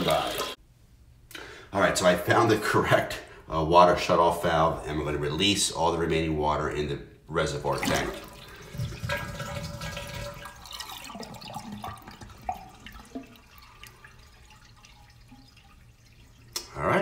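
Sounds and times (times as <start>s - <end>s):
toilet tank draining: 0.0s - 0.6s, 7.6s - 17.0s
water gurgling and dripping: 0.0s - 0.6s, 7.6s - 17.0s.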